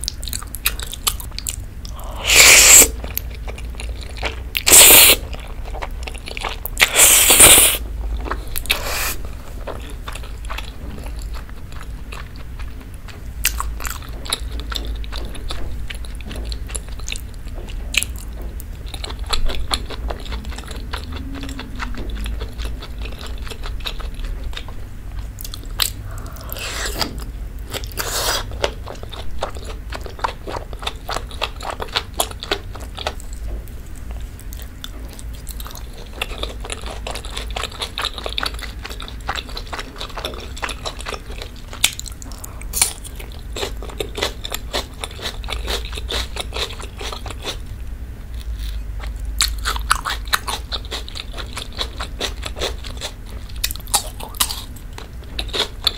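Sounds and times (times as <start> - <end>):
chewing with wet mouth clicks: 0.0 - 47.7, 48.4 - 55.9
slurping spaghetti: 2.0 - 3.0, 4.6 - 5.3, 6.8 - 7.8, 8.7 - 9.2.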